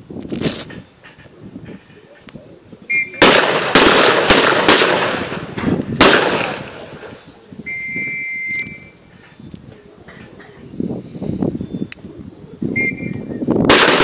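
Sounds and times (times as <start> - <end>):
steady beep: 2.9 - 3.2
rifle shots echoing: 3.1 - 7.1, 13.7 - 14.0
short high beep: 7.7 - 9.0.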